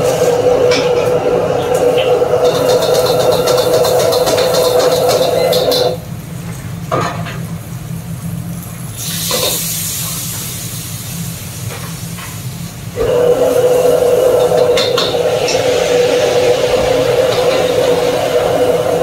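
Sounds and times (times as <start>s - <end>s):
gas wok burner roaring: 0.0s - 19.0s
sizzling steam hiss: 8.5s - 19.0s.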